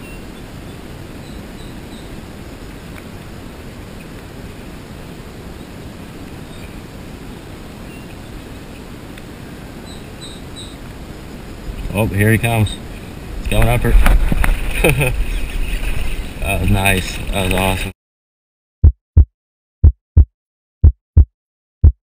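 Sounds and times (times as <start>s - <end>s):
faint bird chirps: 0.0s - 2.2s, 6.4s - 8.9s, 9.8s - 10.8s
low wind rumble: 0.0s - 17.9s.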